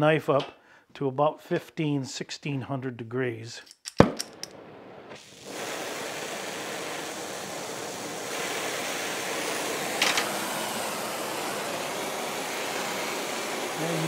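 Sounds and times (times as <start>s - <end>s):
sharp click: 3.7s - 4.6s
gas torch hissing: 5.0s - 14.0s.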